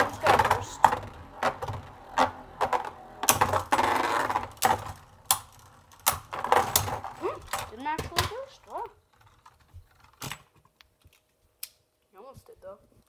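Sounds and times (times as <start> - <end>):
spinning tops grinding scrape: 0.0 - 7.2.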